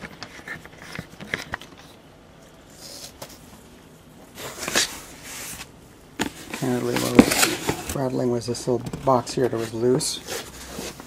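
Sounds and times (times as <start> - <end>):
packing material rustling: 4.4 - 8.0.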